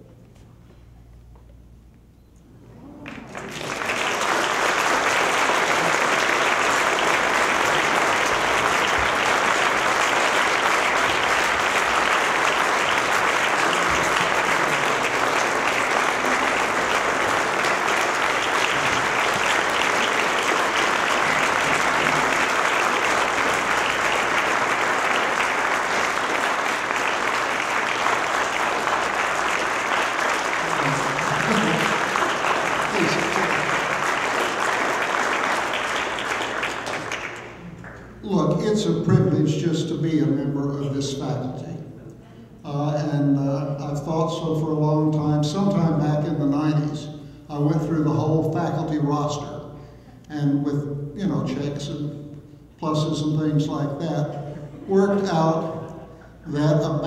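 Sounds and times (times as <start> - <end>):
audience applauding: 2.9 - 39.2.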